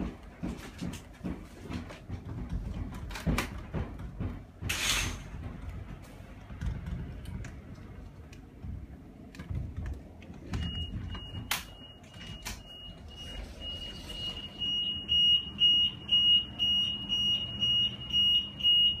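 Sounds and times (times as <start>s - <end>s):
car alarm: 10.6s - 19.0s.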